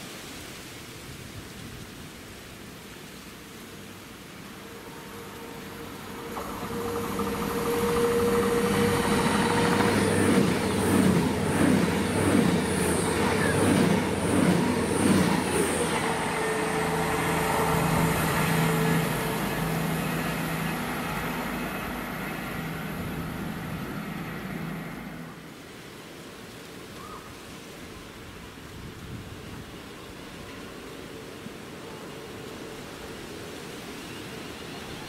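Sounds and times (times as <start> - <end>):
train hum: 2.6 - 26.8, 28.0 - 35.0
rhythmic train wheel clicks: 6.0 - 24.6.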